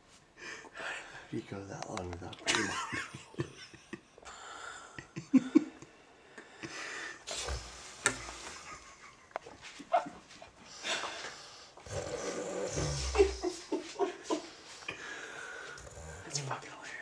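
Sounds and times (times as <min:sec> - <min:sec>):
man breathing noisily while sleeping: 0:00.3 - 0:01.3, 0:04.2 - 0:09.0, 0:10.6 - 0:13.7, 0:14.4 - 0:17.0.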